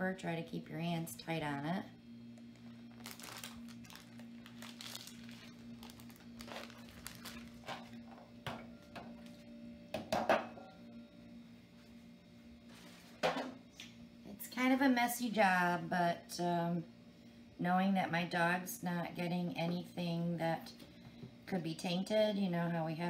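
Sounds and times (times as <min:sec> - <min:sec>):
steady low hum: 0:00.0 - 0:23.0
paper liner crinkling: 0:02.4 - 0:08.0.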